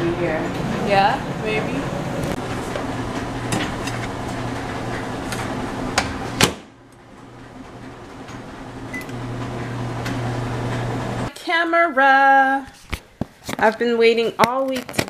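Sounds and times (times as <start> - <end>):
microwave hum: 0.0 - 11.3.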